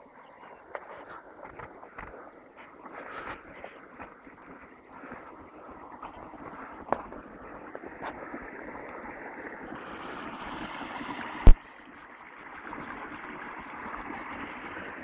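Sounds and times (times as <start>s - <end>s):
wind and handling noise on microphone: 0.0s - 11.6s.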